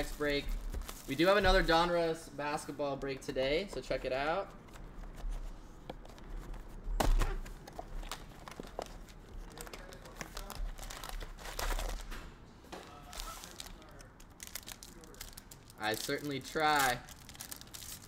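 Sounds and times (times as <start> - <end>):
foil packs crinkling: 0.0 - 1.9, 13.0 - 18.0.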